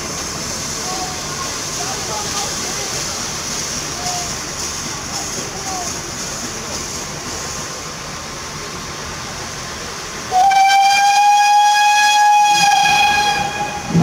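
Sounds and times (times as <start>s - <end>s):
steady rushing hiss: 0.0s - 10.5s
steam locomotive whistle: 10.3s - 14.0s.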